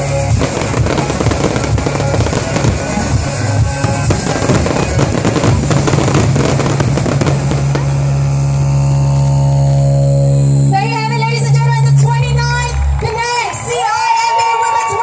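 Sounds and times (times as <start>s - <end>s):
fireworks crackling and bursting: 0.0s - 9.2s
loud music: 0.0s - 15.0s.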